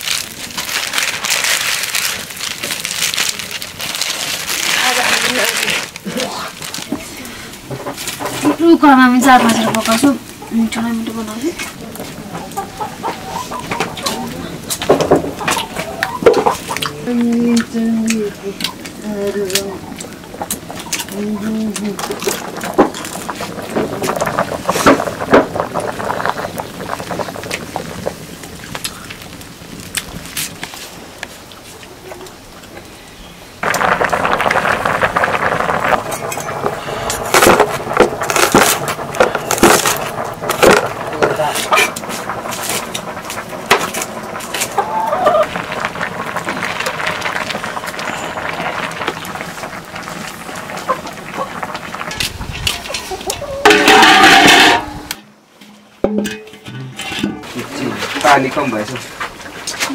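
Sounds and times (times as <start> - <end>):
steady hiss: 0.0 - 59.9
chickens clucking: 11.7 - 17.0, 44.6 - 45.6, 52.6 - 55.0
sharp knocks and clatter: 14.7 - 16.6, 22.0 - 28.8, 33.6 - 44.8, 53.7 - 59.8
utensils knocking and clattering: 53.6 - 58.9.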